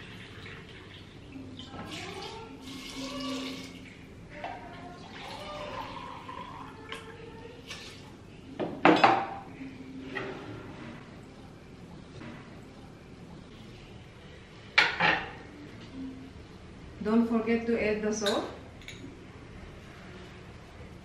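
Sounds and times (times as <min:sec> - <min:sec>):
water pouring into cup: 0:00.0 - 0:04.0, 0:04.9 - 0:08.1
water pouring into metal pot: 0:00.0 - 0:04.0.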